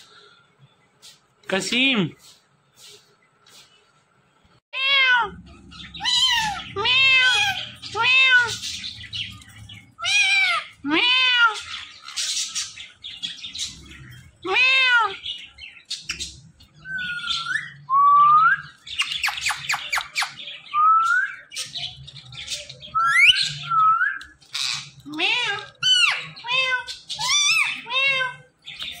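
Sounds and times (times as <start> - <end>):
harsh squawking chatter: 4.8 - 17.9, 18.6 - 29.0
parakeet calling: 4.8 - 17.9, 21.3 - 29.0.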